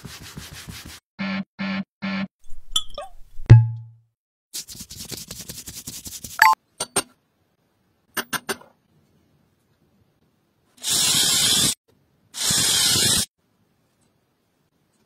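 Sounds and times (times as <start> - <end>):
power drill boring into wood: 12.4 - 13.2.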